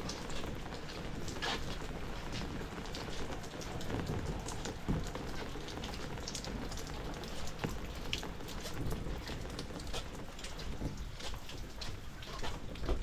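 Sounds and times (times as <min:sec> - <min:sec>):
rain falling: 0:00.0 - 0:13.0
raindrops tapping on umbrella: 0:00.0 - 0:13.0.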